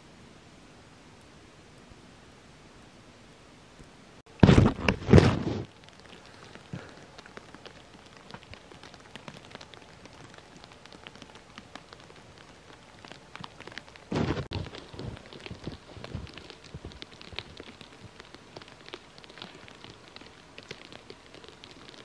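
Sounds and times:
water dripping from icicles: 0:05.7 - 0:22.0.

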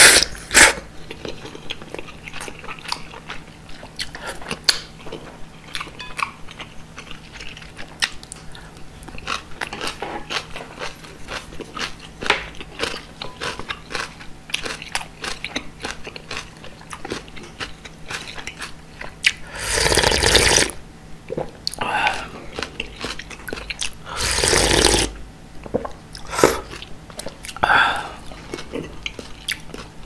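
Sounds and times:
person slurping broth: 0:00.0 - 0:00.8, 0:19.4 - 0:20.8, 0:24.0 - 0:25.2, 0:26.2 - 0:26.7
swallowing: 0:19.5 - 0:20.7, 0:24.1 - 0:26.8.

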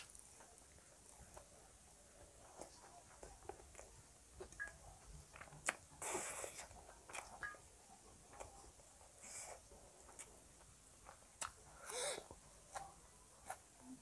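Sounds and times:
person chewing food: 0:02.2 - 0:07.6, 0:08.2 - 0:14.0.

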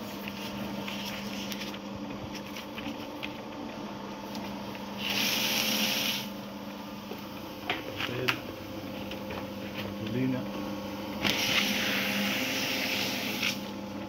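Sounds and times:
paper shredder motor humming: 0:00.0 - 0:14.0
paper being shredded: 0:05.0 - 0:06.3, 0:11.2 - 0:13.8.

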